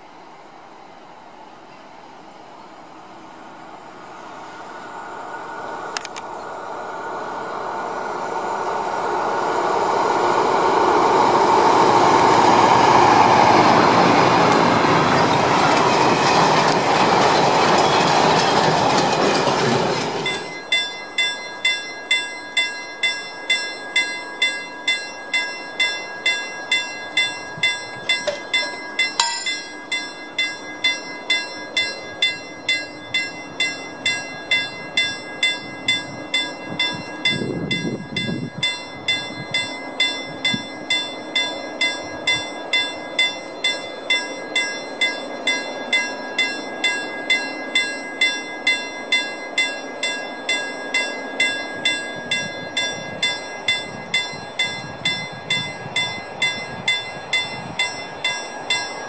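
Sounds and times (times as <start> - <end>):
freight train rumbling past: 0.0 - 59.0
level crossing bell ringing: 20.3 - 59.0.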